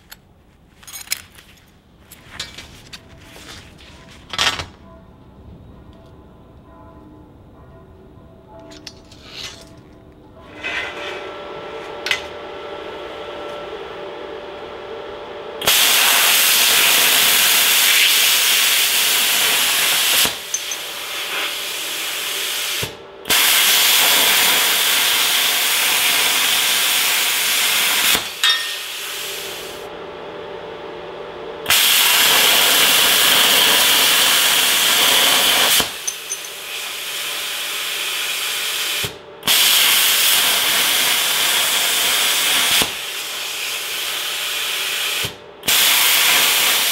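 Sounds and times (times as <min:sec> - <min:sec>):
plasma arc hissing: 0:15.6 - 0:29.8, 0:31.7 - 0:46.9.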